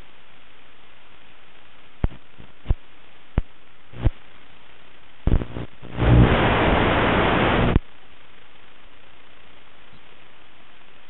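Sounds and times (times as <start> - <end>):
loud rush of static crackle: 0.0 - 11.0
static hiss: 0.0 - 11.0
sharp static pops: 1.2 - 11.0.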